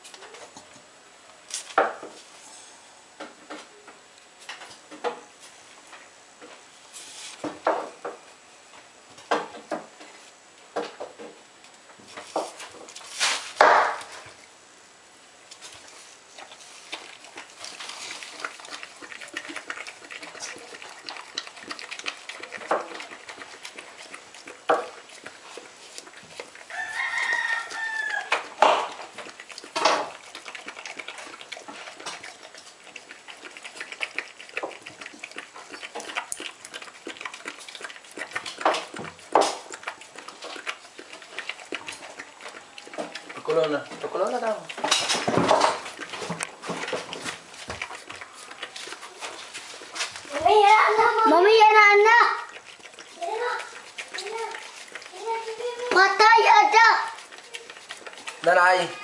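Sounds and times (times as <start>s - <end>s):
rooster crowing: 26.7s - 28.5s.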